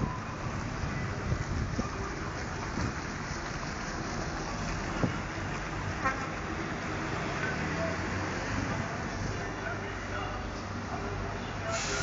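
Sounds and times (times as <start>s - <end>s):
wind buffeting microphone: 0.0s - 3.2s
outdoor roadside roar: 0.0s - 12.0s.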